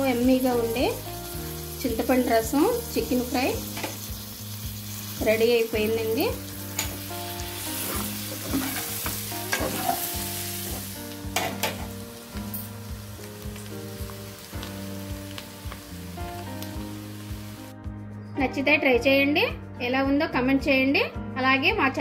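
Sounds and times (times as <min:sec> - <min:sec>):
chicken sizzling in a pan: 0:00.0 - 0:17.7
spatula scraping a pan: 0:07.6 - 0:10.9.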